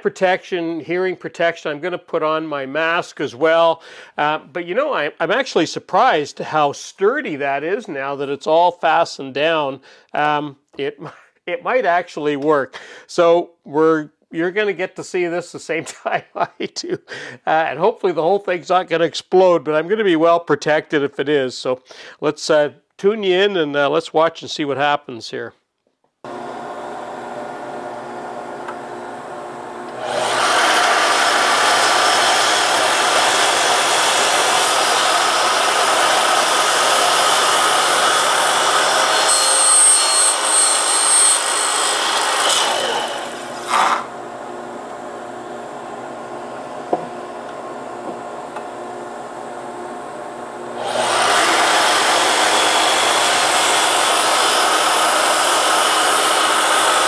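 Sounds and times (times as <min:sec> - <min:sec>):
dust collector running: 0:26.3 - 0:57.0
mitre saw cutting wood: 0:29.9 - 0:44.2, 0:50.8 - 0:57.0.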